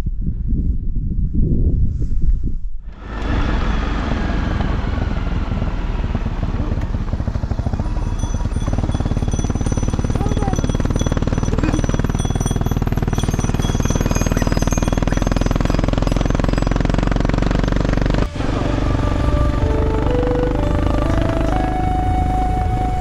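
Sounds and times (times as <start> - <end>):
motorcycle engine running: 3.0 - 23.0.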